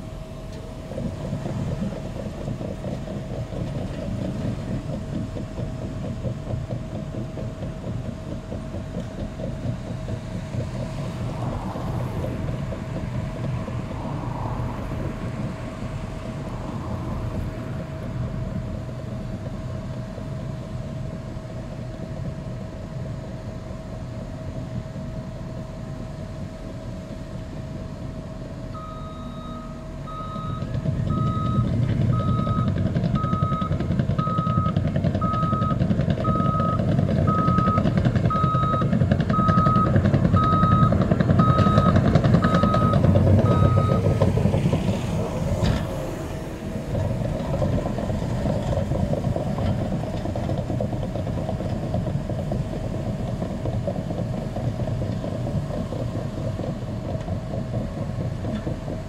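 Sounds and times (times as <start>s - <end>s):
bulldozer diesel engine running: 0.0s - 59.0s
reversing alarm beeping: 28.7s - 44.1s.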